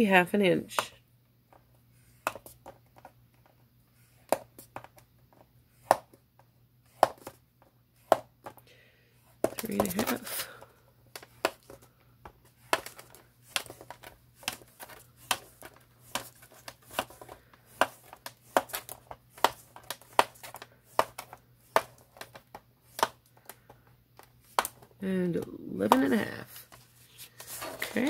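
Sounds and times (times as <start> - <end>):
bone folder scoring paper: 12.4 - 23.8.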